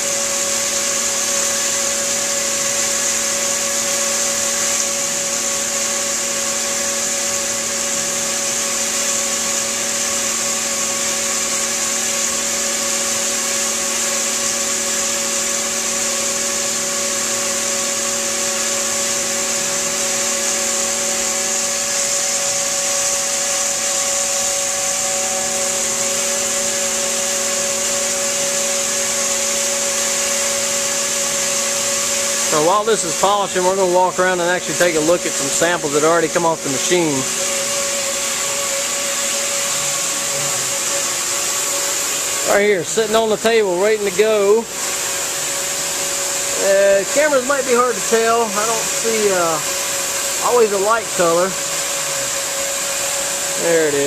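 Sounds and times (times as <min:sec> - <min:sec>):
machine hum with fixed tones: 0:00.0 - 0:54.0.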